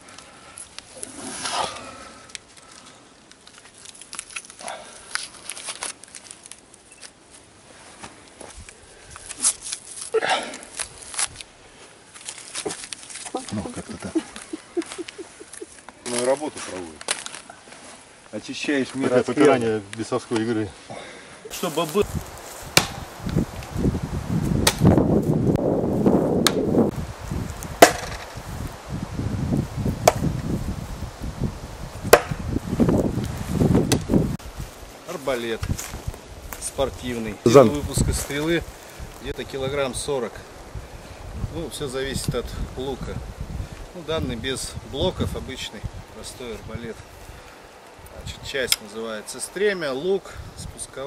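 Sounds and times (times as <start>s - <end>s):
rustling: 0.0s - 19.2s, 21.5s - 26.3s
foil crumpling and tearing: 3.5s - 6.8s
thrown blades striking wood: 22.7s - 23.1s, 24.6s - 24.9s, 27.8s - 28.3s, 30.0s - 30.3s, 32.1s - 32.4s.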